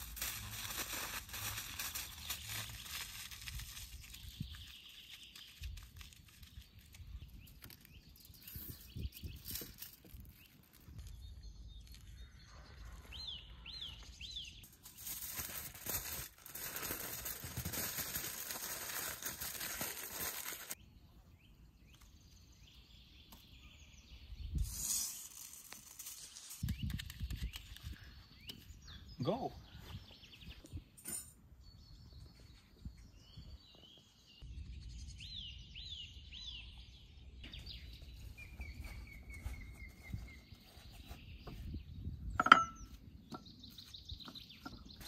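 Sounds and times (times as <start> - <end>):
aluminium foil crinkling: 0.0 - 12.2, 14.6 - 20.8, 24.6 - 27.9
bird chirps: 26.6 - 45.0.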